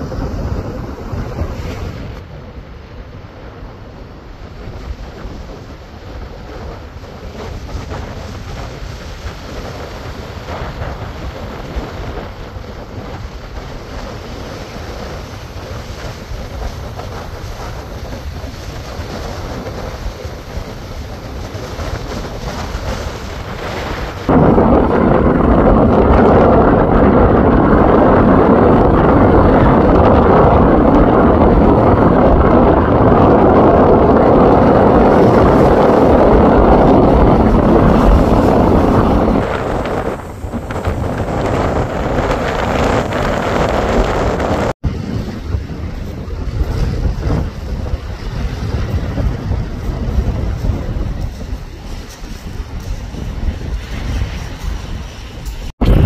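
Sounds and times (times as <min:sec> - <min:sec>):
surf washing onto beach: 0:00.0 - 0:56.0
wind buffeting microphone: 0:00.0 - 0:56.0.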